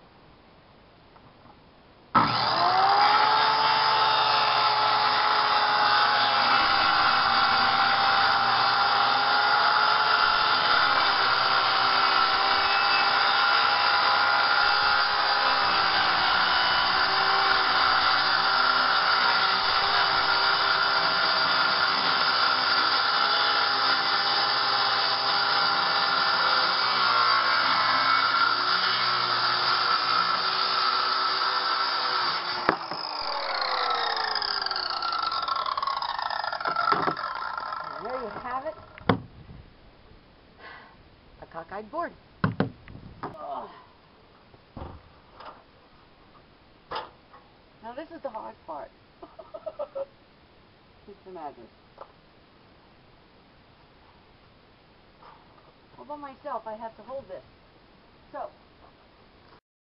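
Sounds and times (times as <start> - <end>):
circular saw cutting plywood: 2.2 - 39.1.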